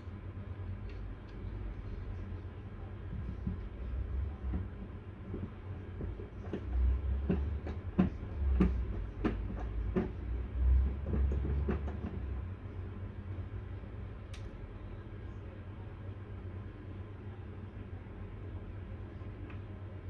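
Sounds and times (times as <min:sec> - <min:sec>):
low rumble: 0:00.4 - 0:15.0.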